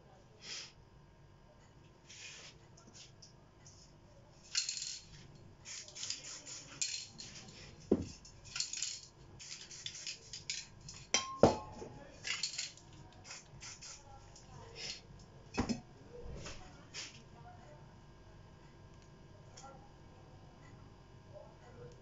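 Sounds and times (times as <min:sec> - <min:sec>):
spray-paint cans clattering: 0:04.5 - 0:11.1, 0:12.2 - 0:13.4
metal cans clinking: 0:06.8 - 0:07.3, 0:10.5 - 0:12.8.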